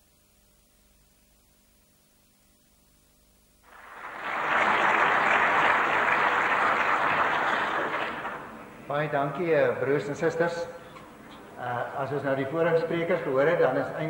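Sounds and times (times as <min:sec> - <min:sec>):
audience applauding: 0:03.7 - 0:08.8.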